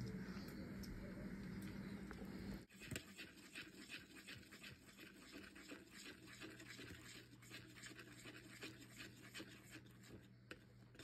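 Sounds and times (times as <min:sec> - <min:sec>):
spoon stirring gravy in a pot: 0:02.7 - 0:11.0.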